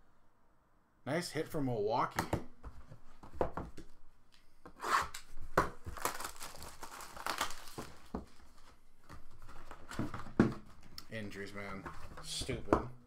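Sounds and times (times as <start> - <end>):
shrink-wrap crinkling and tearing: 5.8 - 8.7.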